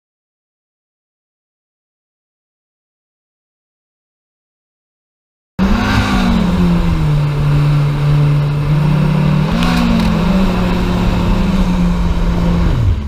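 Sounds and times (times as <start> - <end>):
jet boat engines running: 5.6 - 13.0.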